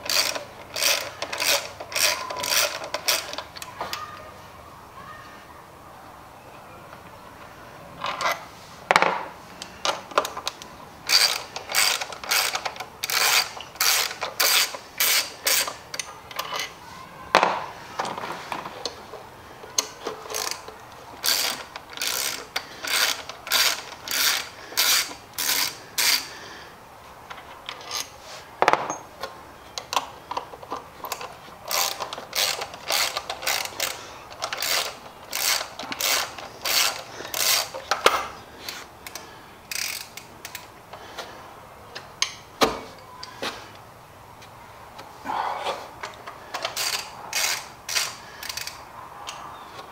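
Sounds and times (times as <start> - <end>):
ratchet wrench clicking: 0.0 - 3.5, 11.0 - 16.7, 19.8 - 26.3, 31.1 - 40.7, 46.5 - 49.4.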